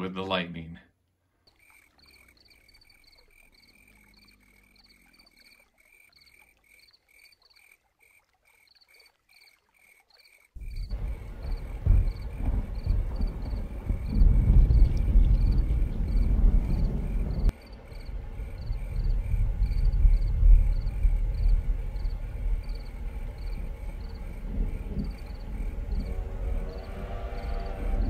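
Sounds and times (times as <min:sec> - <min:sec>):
frogs chirping: 0:01.4 - 0:28.0
low rumble of thunder: 0:10.6 - 0:28.0.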